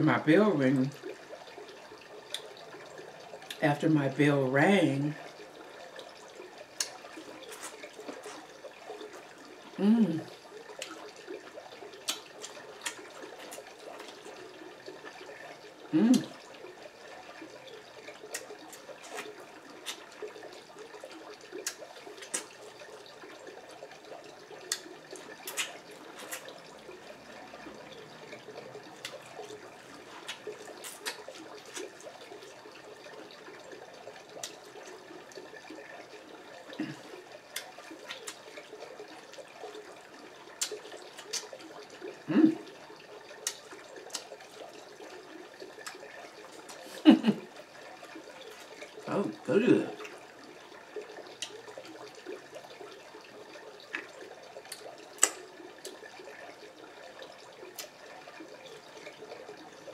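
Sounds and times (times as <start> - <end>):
wet chewing and lip-smacking: 6.7 - 15.4, 17.4 - 33.0, 36.6 - 49.1, 50.9 - 56.4, 57.6 - 59.6.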